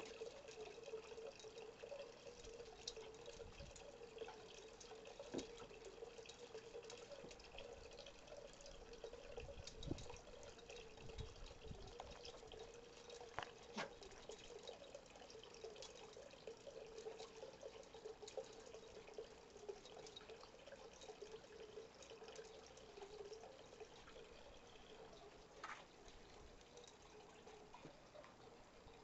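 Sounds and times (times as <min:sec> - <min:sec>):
faint wavering hum: 0:00.0 - 0:29.0
small clicks and ticks: 0:00.0 - 0:29.0.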